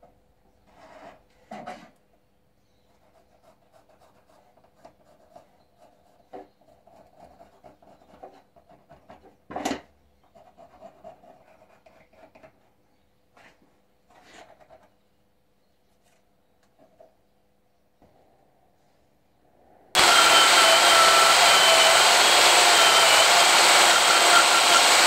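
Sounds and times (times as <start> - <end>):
pencil scratching on horn: 2.9 - 9.2, 10.4 - 12.4.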